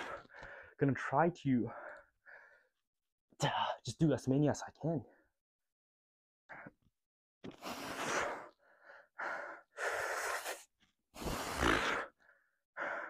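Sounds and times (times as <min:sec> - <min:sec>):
man breathing hard: 0:00.0 - 0:00.8, 0:01.7 - 0:02.8, 0:07.5 - 0:13.0.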